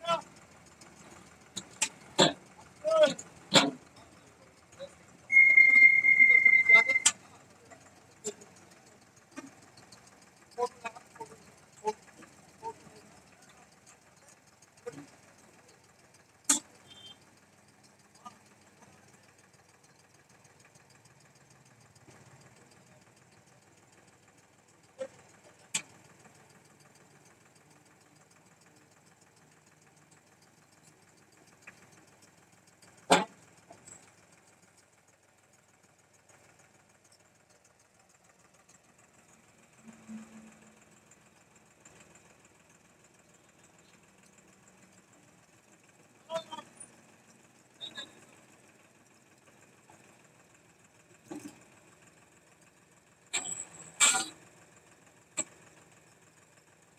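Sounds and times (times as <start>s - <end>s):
faint tractor engine running: 0.0s - 56.9s
sharp metal clanks: 3.5s - 3.8s.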